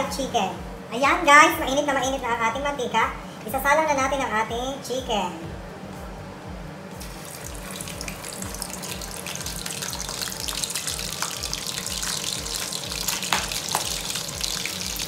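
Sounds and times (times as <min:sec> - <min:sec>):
chicken sizzling in hot oil: 0:07.0 - 0:15.0.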